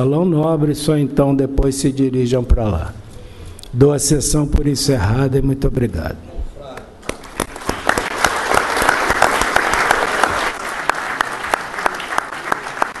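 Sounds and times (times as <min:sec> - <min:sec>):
audience applauding: 0:07.0 - 0:13.0.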